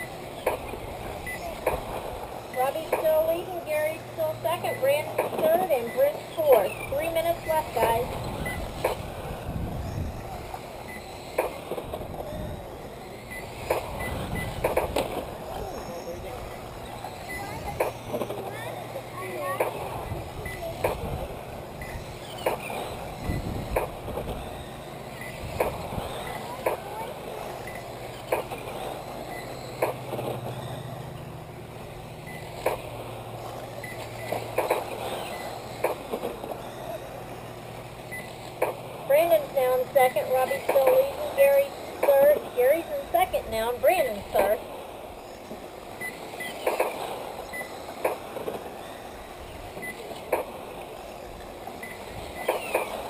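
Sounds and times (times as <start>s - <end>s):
remote control cars running: 0.0s - 53.0s
sharp clacks: 34.0s - 36.6s.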